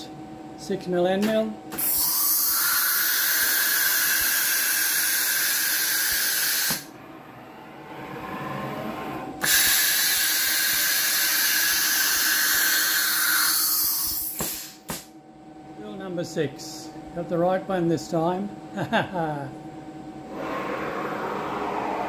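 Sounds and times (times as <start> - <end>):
compressed air hissing: 1.8 - 6.9, 9.4 - 15.1
faint rising whine: 6.8 - 9.4, 19.8 - 22.0.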